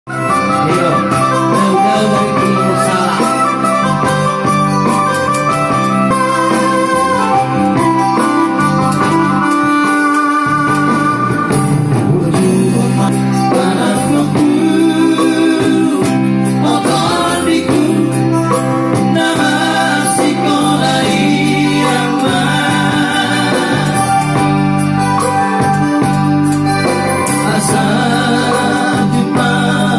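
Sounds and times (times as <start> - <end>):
men singing into microphones: 0.1 - 4.0, 11.9 - 24.8, 27.0 - 29.9
electronic keyboard: 0.1 - 29.9.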